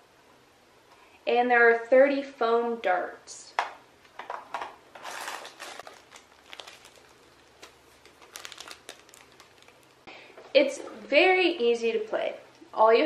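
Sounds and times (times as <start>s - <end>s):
plastic bag crinkling: 4.9s - 10.1s.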